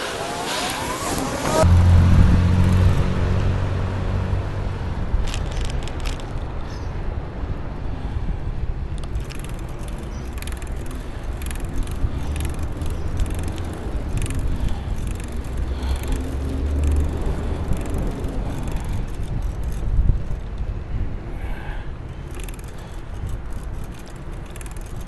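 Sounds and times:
wind and road rumble: 0:00.0 - 0:25.0
bicycle clicks and rattles: 0:05.1 - 0:06.9, 0:08.9 - 0:25.0.

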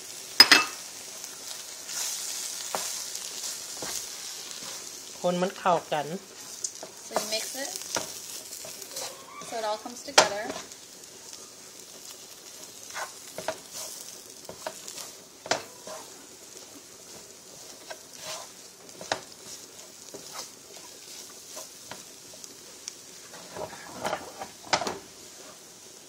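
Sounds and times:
paste sizzling in oil: 0:00.0 - 0:26.0
spoon scraping a pan: 0:06.4 - 0:10.7, 0:12.8 - 0:16.2, 0:17.6 - 0:22.0, 0:23.3 - 0:25.7.

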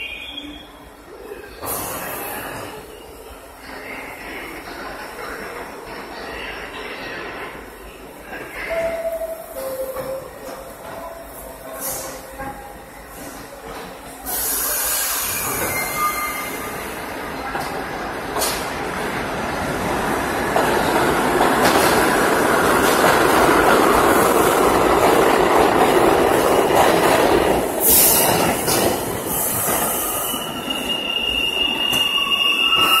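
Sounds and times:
train air hiss: 0:11.7 - 0:12.3, 0:14.2 - 0:16.7
high-pitched wheel squeal: 0:15.2 - 0:16.7.

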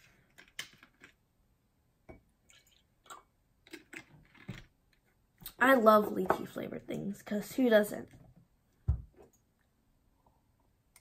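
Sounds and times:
drink pouring into glass: 0:02.4 - 0:04.0.

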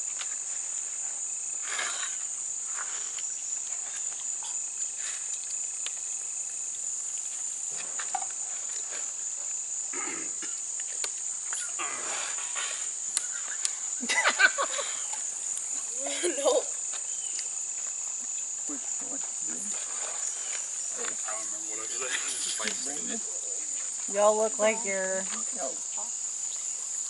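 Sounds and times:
shrill insect chorus: 0:00.0 - 0:27.0
people mumbling: 0:21.0 - 0:23.7.

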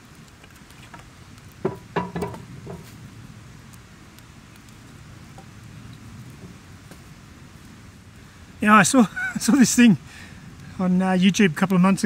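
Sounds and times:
fire crackling: 0:00.0 - 0:12.0
firewood sticks knocking: 0:00.3 - 0:03.0.

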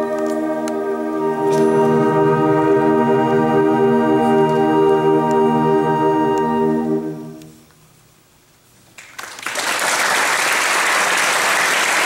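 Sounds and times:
concert band sustained chord: 0:00.0 - 0:07.7
audience applause: 0:09.0 - 0:12.0.

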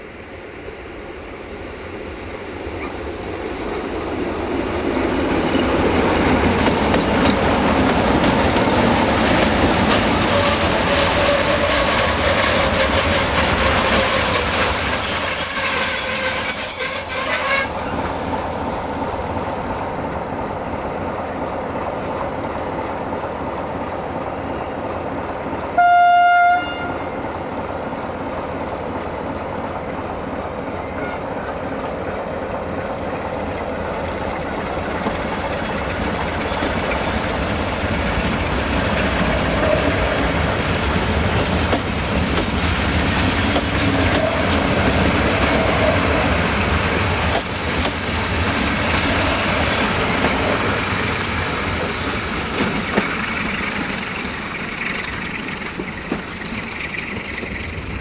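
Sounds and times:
diesel locomotive engine: 0:00.0 - 0:58.0
high wheel squeal: 0:04.7 - 0:09.3, 0:09.9 - 0:18.2, 0:29.7 - 0:31.5, 0:33.1 - 0:33.9
locomotive horn blast: 0:15.5 - 0:18.0, 0:25.8 - 0:27.2
wheel-on-rail rumble: 0:17.6 - 0:58.0.

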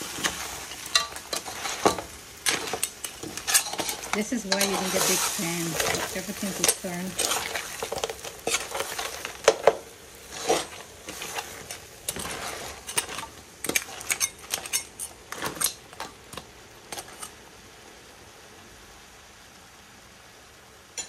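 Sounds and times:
metal spoon scraping a metal pan: 0:00.0 - 0:16.1, 0:16.9 - 0:17.4
faint steady hiss: 0:00.0 - 0:21.0.

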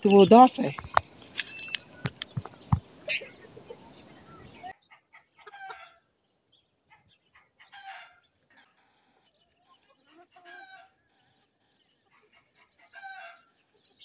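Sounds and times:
chickens clucking: 0:00.0 - 0:06.2, 0:06.9 - 0:14.0
sharp clicks and knocks: 0:00.6 - 0:02.9.

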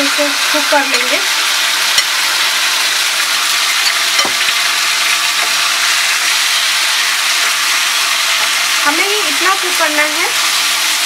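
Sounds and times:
chicken sizzling in hot oil: 0:00.0 - 0:11.0.

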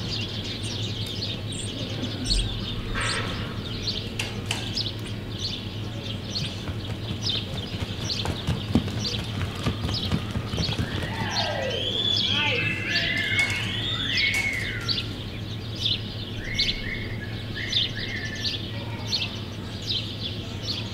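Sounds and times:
small birds chirping: 0:00.0 - 0:20.9
steady low hum: 0:00.0 - 0:20.9
horse hoofbeats on dirt: 0:05.8 - 0:15.1.

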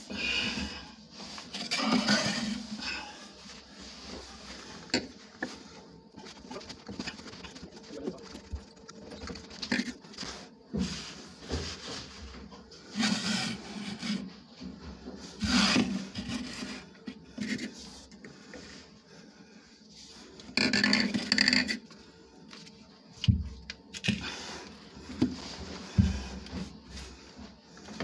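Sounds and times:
pvc pipe scraping and rubbing: 0:01.1 - 0:18.1, 0:20.2 - 0:22.7.

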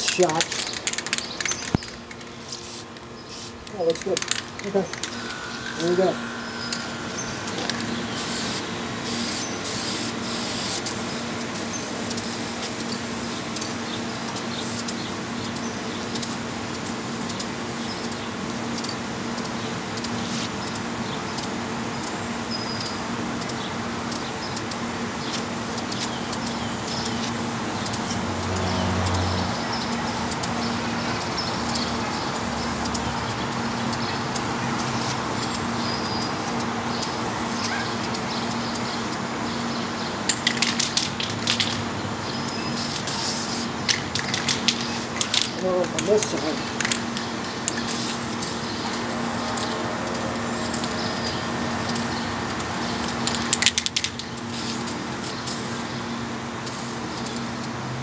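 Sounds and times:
aerosol spray can hissing: 0:06.7 - 0:11.3, 0:42.7 - 0:43.7, 0:47.7 - 0:53.1, 0:54.4 - 0:55.9.

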